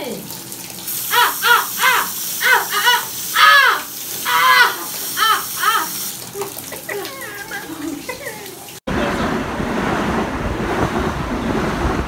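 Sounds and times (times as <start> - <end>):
sink faucet running: 0.0 - 8.8
squawking puppet voice: 1.1 - 5.9.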